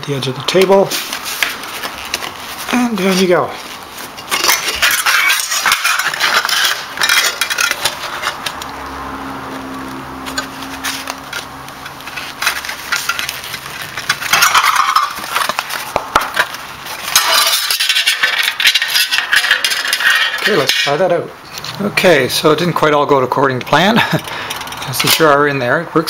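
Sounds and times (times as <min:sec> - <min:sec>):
thin metal sheet crinkling: 0:00.0 - 0:08.6, 0:10.3 - 0:21.8.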